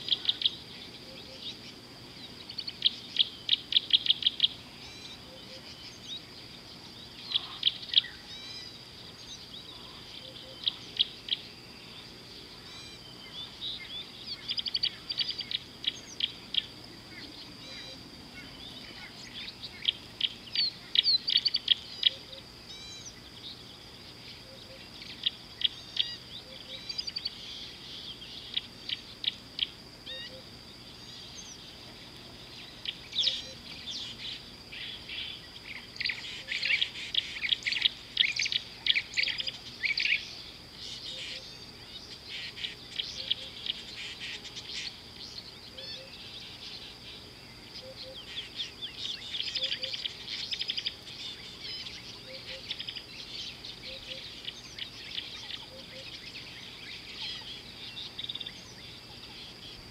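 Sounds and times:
high-pitched insect drone: 0.0 - 59.9
birds calling sharp notes: 31.0 - 47.0.

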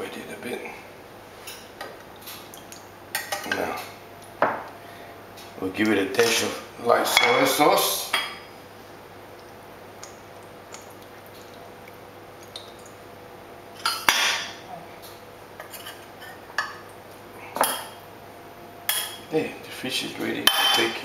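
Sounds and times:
kitchenware clatter: 13.8 - 14.6, 15.6 - 16.8, 20.4 - 21.0.

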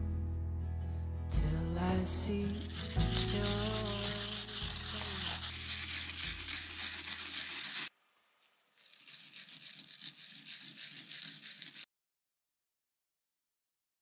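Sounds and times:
onion grated on ceramic grater: 2.5 - 7.9, 8.7 - 11.9.

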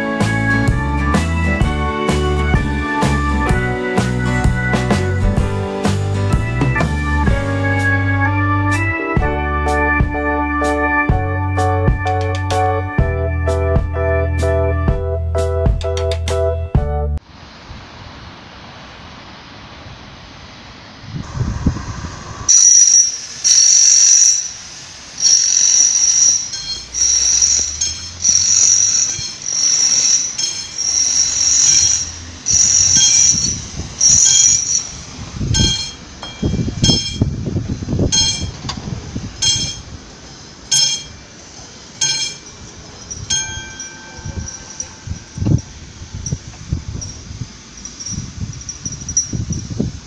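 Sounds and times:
low rumble of traffic: 17.2 - 50.0
level-crossing warning bell ringing: 22.5 - 38.7, 39.4 - 40.0, 40.7 - 49.7.

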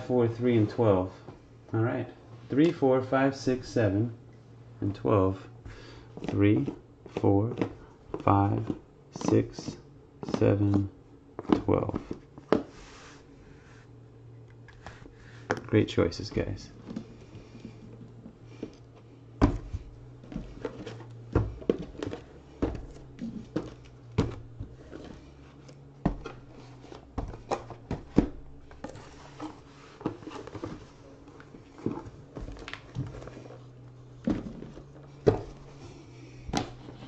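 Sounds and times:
low steady hum: 0.0 - 37.0
cardboard boxes knocking on table: 19.4 - 25.1.

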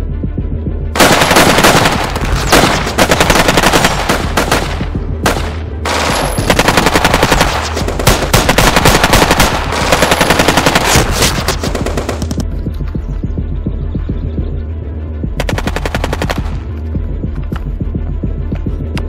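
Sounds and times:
steady low hum: 0.0 - 5.9, 11.4 - 19.0
machine-gun bursts: 1.0 - 4.8, 5.9 - 12.2.

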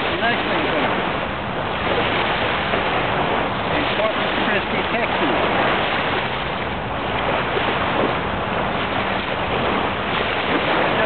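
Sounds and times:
waves washing onto beach: 0.0 - 11.0
wind noise on microphone: 0.0 - 11.0.

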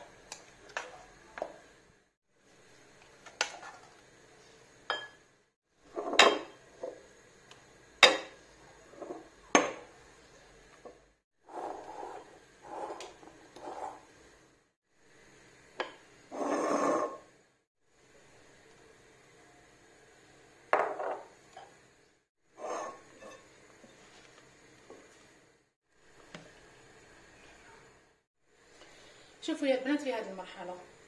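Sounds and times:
scraping and folding in glass bowl: 22.6 - 24.3.

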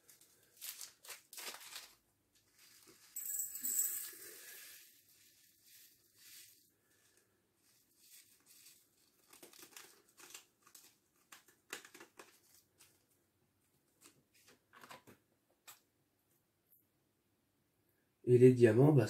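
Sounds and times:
plastic bags crinkling: 0.0 - 3.2, 4.2 - 13.0.

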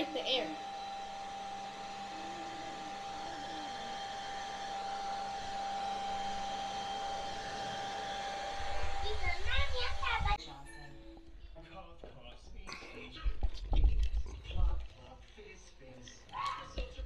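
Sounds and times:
blow dryer running: 0.0 - 10.4.

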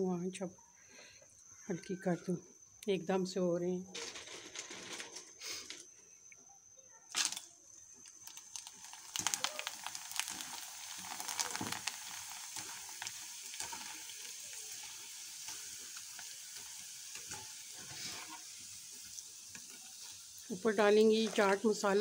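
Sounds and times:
papad crackling in hot oil: 7.1 - 22.0
steady oil sizzle: 8.0 - 22.0
wire strainer stirring: 9.1 - 18.4.

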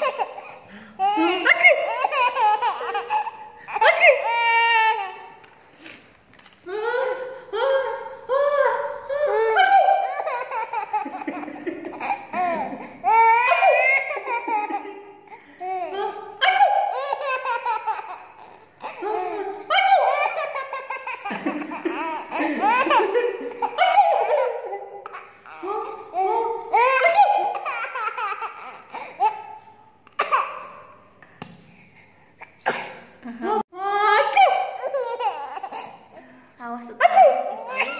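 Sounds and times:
baby laughing: 0.0 - 5.4, 9.1 - 16.0, 16.6 - 31.0, 34.7 - 36.2, 37.3 - 37.9.

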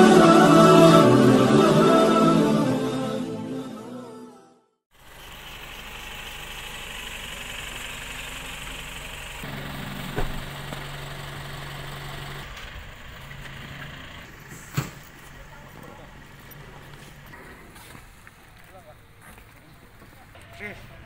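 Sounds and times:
vehicle engine idling: 4.9 - 21.0.

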